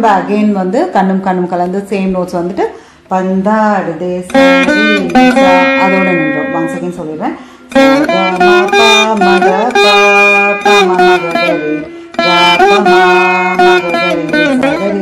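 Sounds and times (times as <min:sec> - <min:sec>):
plucked veena melody: 0:03.3 - 0:15.0.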